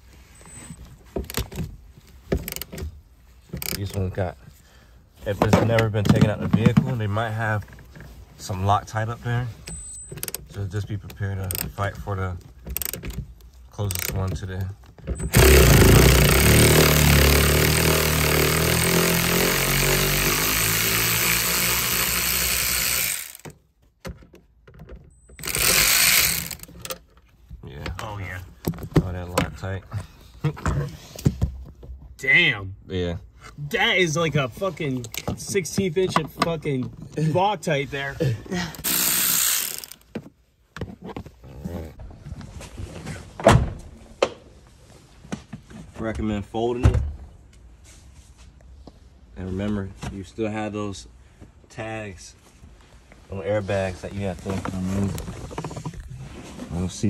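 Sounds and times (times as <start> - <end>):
electric ratchet running: 15.3 - 23.5, 25.4 - 26.8, 38.8 - 40.1
power tool spinning: 15.3 - 23.5, 25.4 - 26.9, 38.7 - 40.1.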